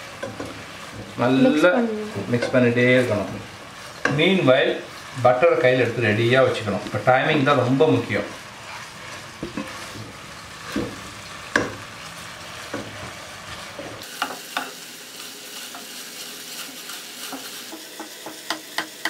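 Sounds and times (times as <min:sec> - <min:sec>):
syrup bubbling and sizzling in a pot: 0:00.0 - 0:19.0
spatula tapping and scraping a pan: 0:00.2 - 0:01.2, 0:03.8 - 0:04.4, 0:08.7 - 0:11.9, 0:12.6 - 0:14.8, 0:16.8 - 0:19.0.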